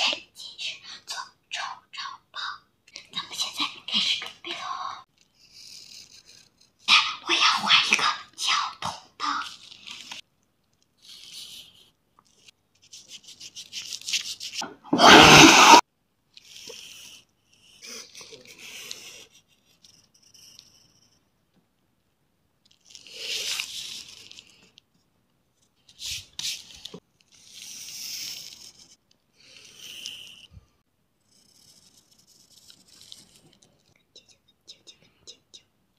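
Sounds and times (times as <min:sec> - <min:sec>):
pencil scratching on paper: 0:05.4 - 0:08.0, 0:11.0 - 0:15.8, 0:16.4 - 0:21.3, 0:25.8 - 0:33.9.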